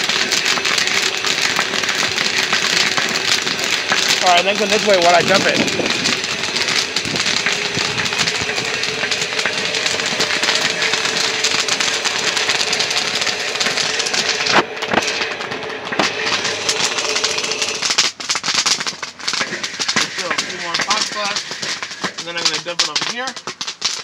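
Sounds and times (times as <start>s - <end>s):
kettle corn hissing and crackling: 0.0s - 24.0s.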